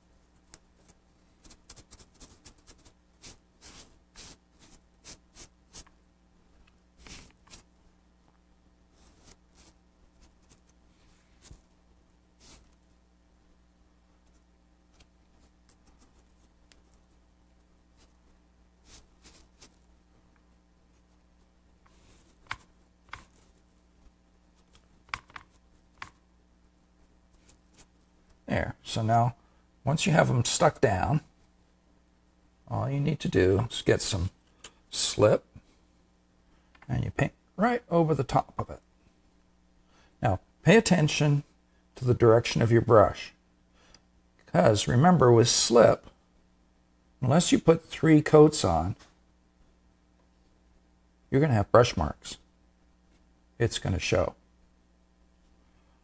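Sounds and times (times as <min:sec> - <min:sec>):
sponge rubbing paper on clay: 0:00.8 - 0:05.9, 0:07.0 - 0:07.7, 0:08.9 - 0:11.6, 0:12.4 - 0:12.8, 0:18.8 - 0:19.9.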